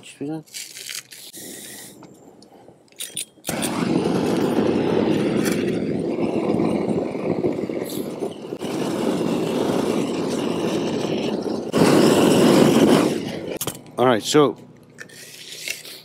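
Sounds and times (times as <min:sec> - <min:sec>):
roofing torch flame rushing: 0:03.5 - 0:16.0.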